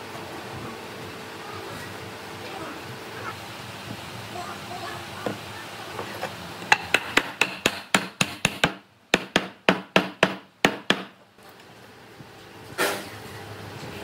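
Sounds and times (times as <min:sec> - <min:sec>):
hammer striking wood: 0:06.7 - 0:11.2.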